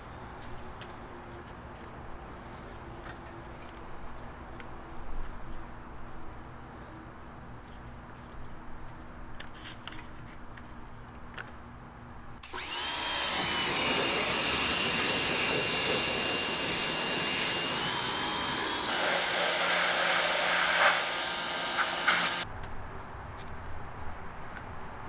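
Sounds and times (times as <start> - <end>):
pressure washer whining: 12.4 - 22.4
water spray hissing: 13.2 - 22.4.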